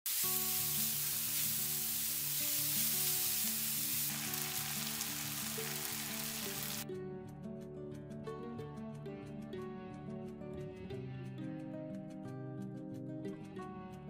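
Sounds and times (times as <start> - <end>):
food sizzling in frying pan: 0.1 - 6.8
background music: 0.1 - 14.0.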